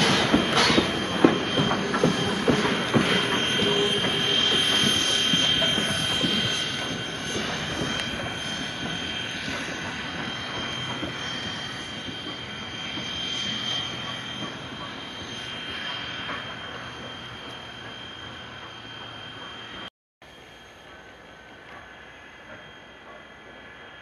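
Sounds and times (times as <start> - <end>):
train wheels clicking over rail joints: 0.0 - 19.8
high-pitched wheel squeal: 0.1 - 19.9.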